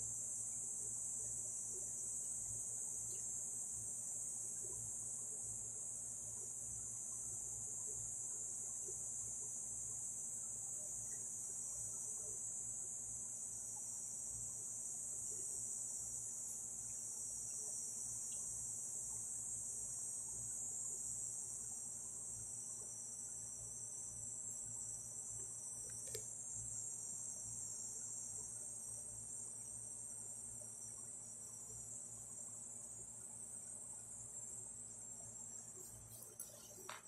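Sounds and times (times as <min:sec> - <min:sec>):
crickets chirping: 0:00.0 - 0:37.0
small click: 0:25.4 - 0:26.3.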